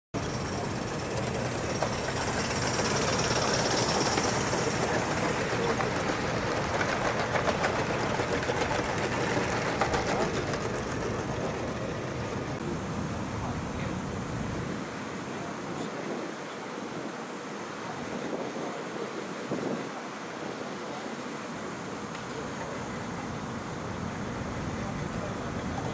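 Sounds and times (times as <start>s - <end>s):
wagons clicking over rail joints: 0.2s - 12.6s, 24.9s - 25.9s
locomotive hissing: 0.2s - 16.0s.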